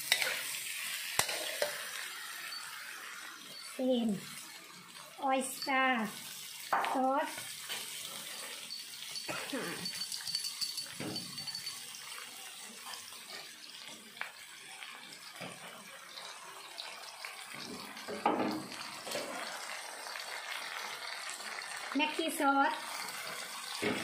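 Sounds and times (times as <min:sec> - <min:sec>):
meatballs sizzling in frying pan: 0:00.0 - 0:24.0.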